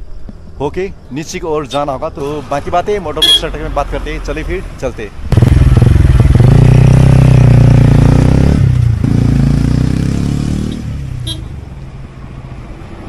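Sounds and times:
motorcycle engine revving: 5.3s - 11.5s.

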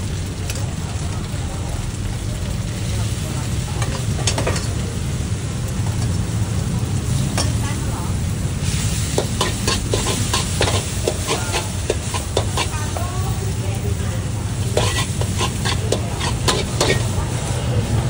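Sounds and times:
noodles sizzling in a wok: 0.0s - 18.0s
metal spatula scraping a wok: 8.6s - 13.1s, 14.5s - 17.5s.

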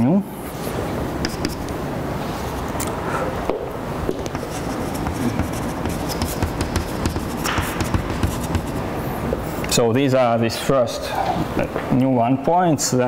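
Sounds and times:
low room hum: 0.0s - 13.0s
chalk tapping and scratching on board: 1.2s - 1.8s, 4.1s - 8.9s.

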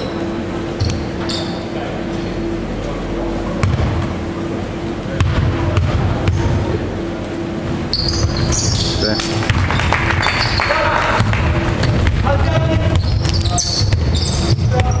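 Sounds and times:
basketball bouncing on wooden floor: 3.6s - 3.9s.

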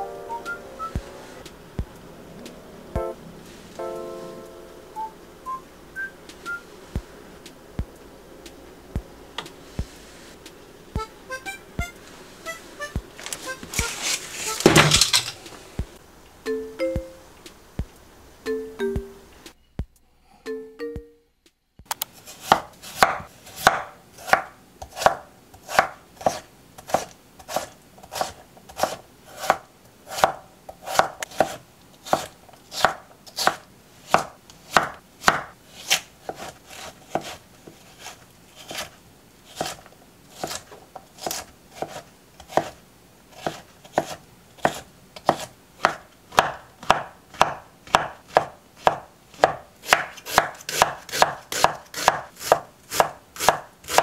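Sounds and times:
knife chopping on wooden board: 22.3s - 38.9s, 39.5s - 39.8s, 40.4s - 42.8s, 43.4s - 54.0s.

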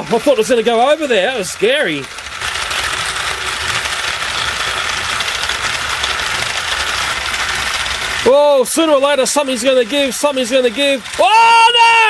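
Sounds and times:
toy train motors whirring and rattling: 0.0s - 12.0s.

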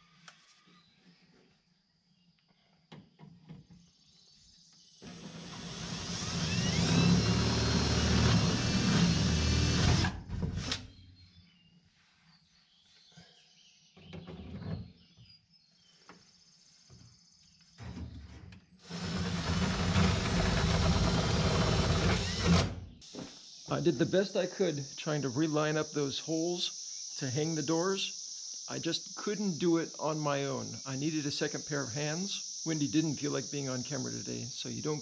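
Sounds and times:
cordless drill drilling into wood: 5.0s - 10.9s, 18.8s - 22.8s.

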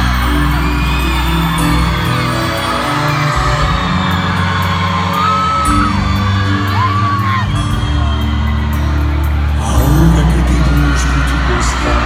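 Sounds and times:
crowd whooping: 0.0s - 12.0s
live pop band playing: 0.0s - 12.0s.

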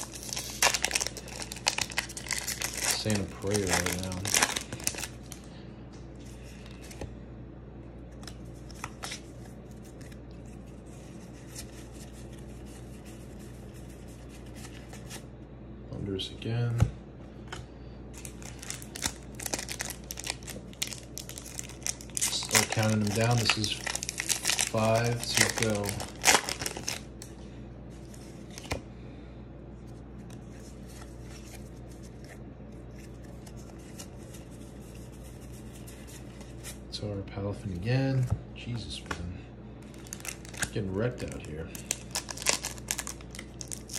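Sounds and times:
foil wrapper crinkling and tearing: 0.0s - 5.5s, 18.2s - 27.3s, 39.8s - 43.9s
steady low hum: 0.0s - 43.9s.

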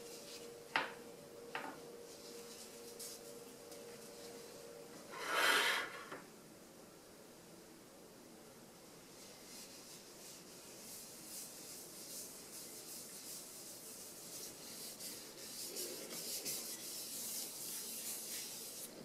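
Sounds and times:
paper towel wiping metal pan: 9.1s - 19.0s.

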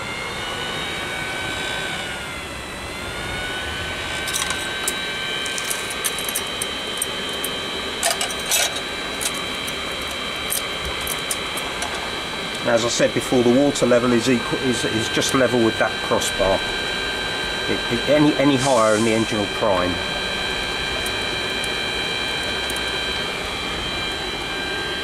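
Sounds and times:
electric blower whine: 0.0s - 25.0s
sharp metallic clicks and rattles: 4.2s - 12.6s.

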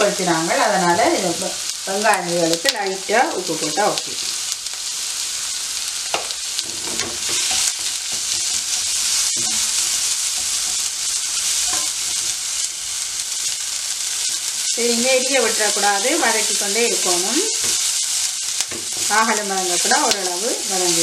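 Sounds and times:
vegetables sizzling in oil: 0.0s - 21.0s
spatula scraping a wok: 6.6s - 12.7s.

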